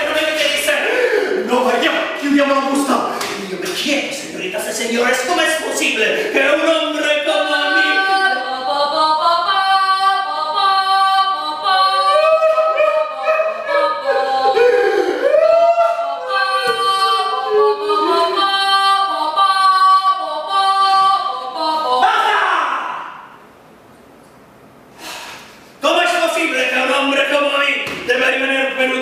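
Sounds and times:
high voice singing unaccompanied: 0:06.4 - 0:23.3.

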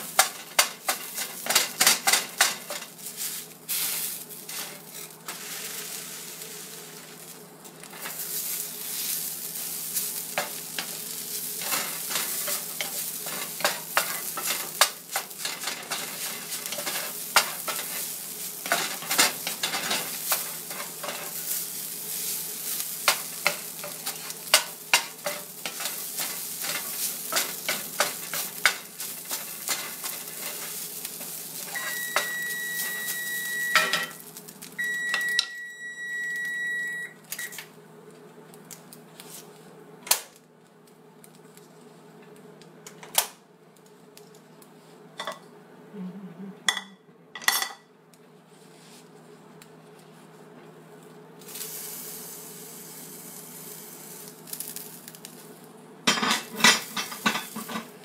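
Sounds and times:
fish sizzling in a skillet: 0:00.0 - 0:35.4, 0:51.4 - 0:58.0.

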